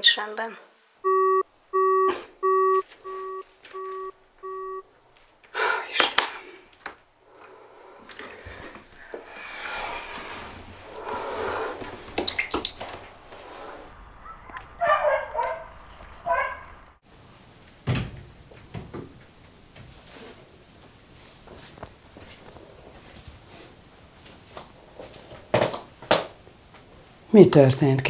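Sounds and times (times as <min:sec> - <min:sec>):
high-pitched trill: 0:01.0 - 0:04.8
phone busy tone beeping: 0:01.0 - 0:04.8
water splashing and dripping: 0:10.0 - 0:14.8
chirps: 0:14.0 - 0:17.0.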